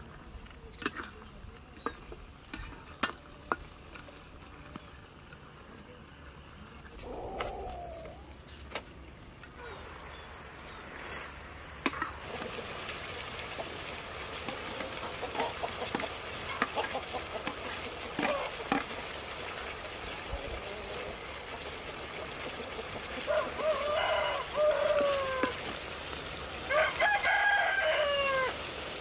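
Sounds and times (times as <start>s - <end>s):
food sizzling in a wok: 9.2s - 29.0s
metal spatula scraping a pan: 11.0s - 12.6s, 14.4s - 19.0s
rooster crowing: 23.2s - 25.6s, 26.7s - 28.6s.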